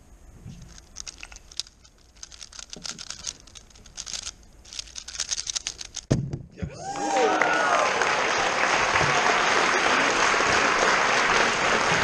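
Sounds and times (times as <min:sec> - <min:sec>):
speed cube turning clicks: 0:00.6 - 0:06.1.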